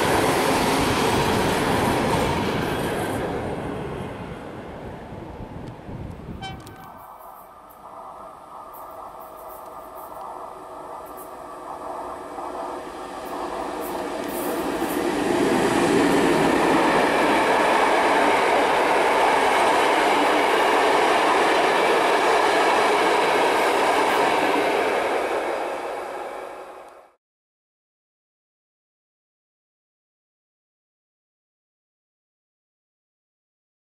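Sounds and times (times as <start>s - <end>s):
train wheels on rail: 0.0s - 27.2s.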